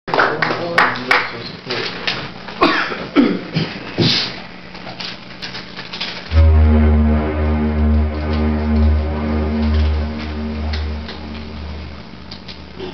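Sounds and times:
deep synthesizer drone: 0:06.3 - 0:12.8
faint hum: 0:06.3 - 0:12.9.

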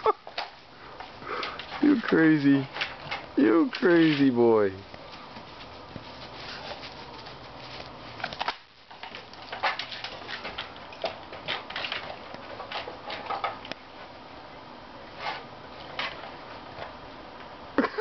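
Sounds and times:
fence rattling: 0:00.0 - 0:13.7.

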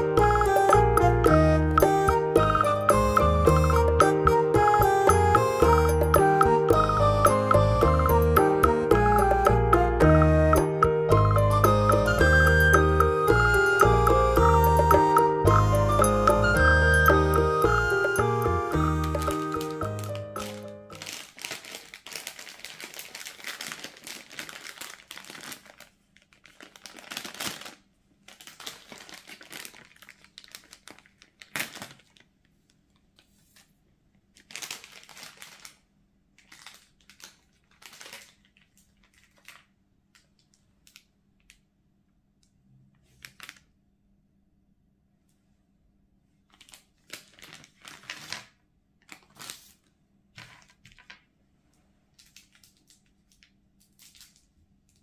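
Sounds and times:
wrapped candies tipped out: 0:18.7 - 0:32.3, 0:34.4 - 0:35.8, 0:36.4 - 0:40.3
plastic candy wrapper crinkling: 0:18.7 - 0:33.3, 0:34.3 - 0:41.6, 0:43.1 - 0:43.7, 0:46.4 - 0:51.2, 0:52.1 - 0:55.0.

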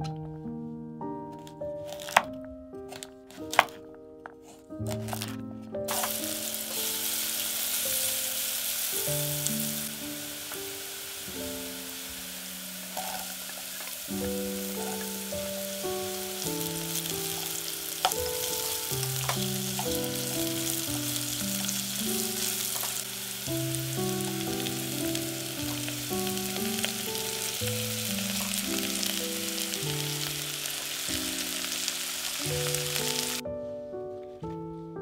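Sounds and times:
background music: 0:00.0 - 0:35.0
vegetables sizzling in oil: 0:01.9 - 0:02.2, 0:05.9 - 0:33.4.

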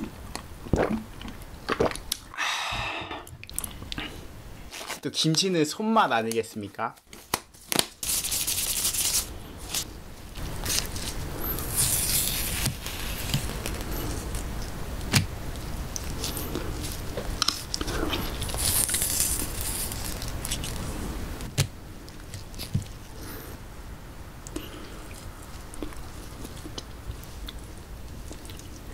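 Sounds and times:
wet squishing and tearing: 0:07.0 - 0:23.1.

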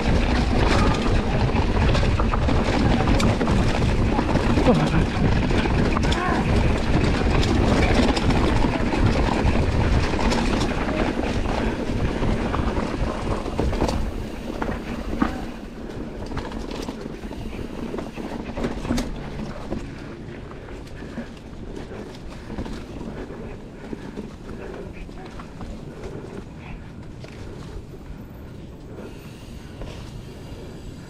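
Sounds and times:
wind noise on microphone: 0:00.0 - 0:19.3
bike parts rattling: 0:00.0 - 0:27.9.

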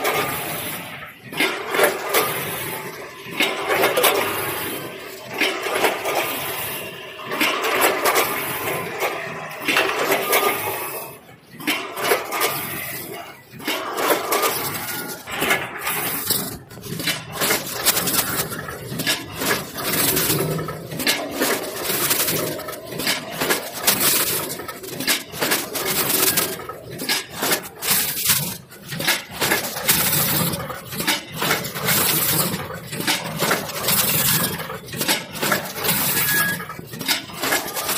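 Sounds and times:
metallic clatter of weigher: 0:11.6 - 0:37.9.

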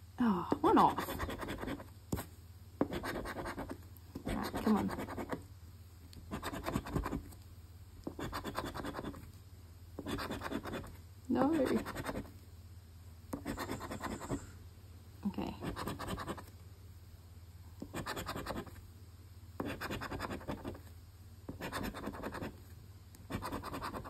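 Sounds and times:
coin scratching lottery ticket: 0:13.4 - 0:14.4.

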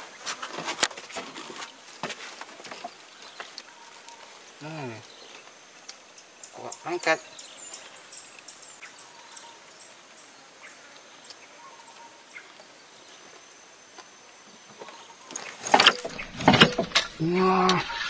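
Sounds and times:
high insect whine: 0:01.1 - 0:18.0
faint bird chirps: 0:14.4 - 0:18.0.

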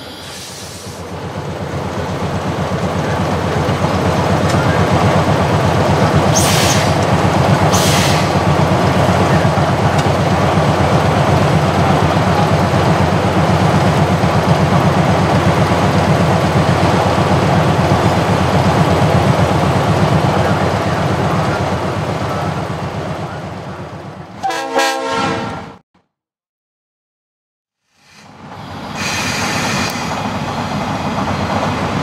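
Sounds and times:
locomotive diesel engine rumbling: 0:00.0 - 0:24.4, 0:28.0 - 0:32.0
air hisses: 0:28.0 - 0:30.2.

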